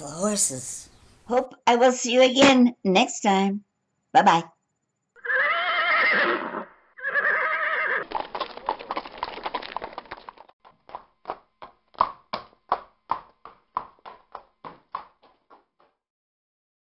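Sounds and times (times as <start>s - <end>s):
horse hooves clip-clopping: 8.0s - 16.0s.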